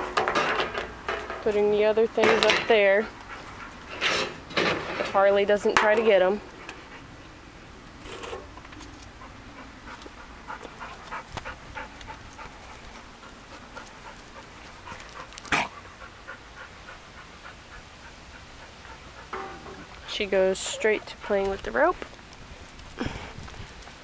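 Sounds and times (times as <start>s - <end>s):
dog panting: 2.8s - 4.0s, 9.1s - 22.1s.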